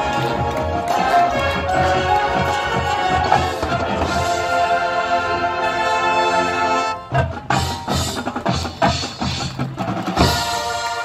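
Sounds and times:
drums and percussion hits: 0:00.0 - 0:04.5, 0:07.1 - 0:11.0
marching band sustained chord: 0:00.0 - 0:08.8.

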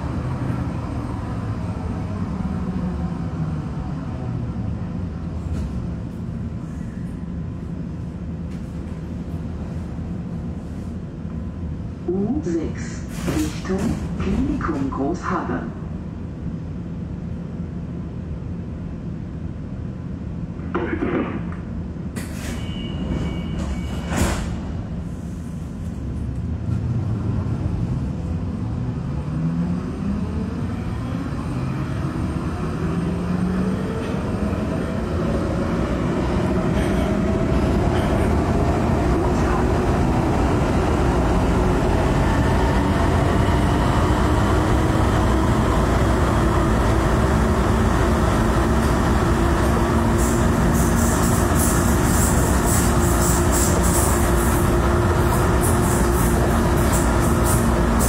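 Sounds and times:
train running noise: 0:00.0 - 0:58.0
train traction drive whine: 0:26.9 - 0:58.0.

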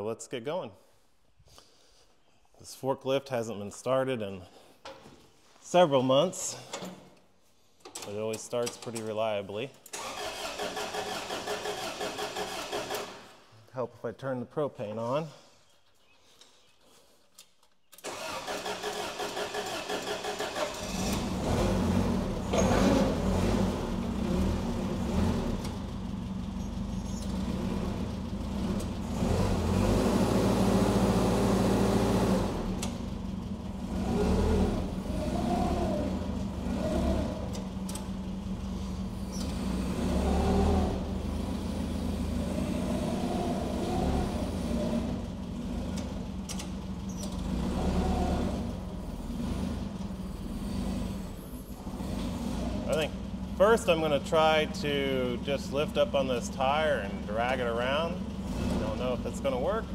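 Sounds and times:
starter motor cranking: 0:09.9 - 0:13.4, 0:18.0 - 0:23.7
forklift engine running: 0:18.0 - 0:59.9.

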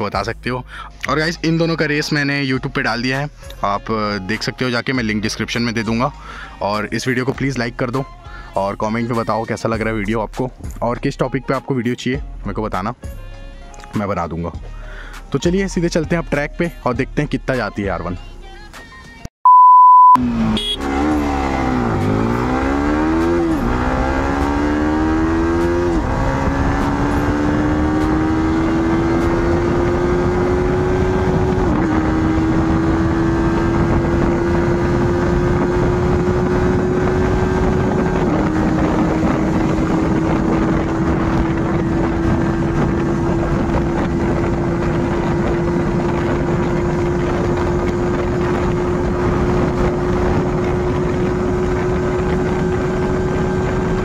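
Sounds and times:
motorcycle engine at full throttle: 0:20.2 - 0:54.0
wind rushing: 0:20.8 - 0:54.0.

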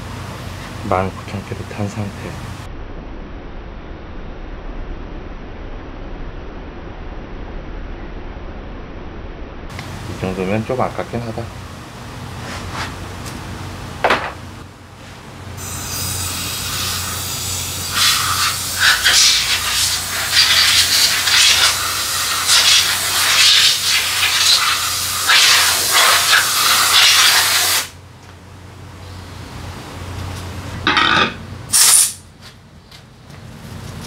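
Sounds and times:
compressed air blow gun hissing: 0:15.8 - 0:27.9, 0:31.7 - 0:32.2.

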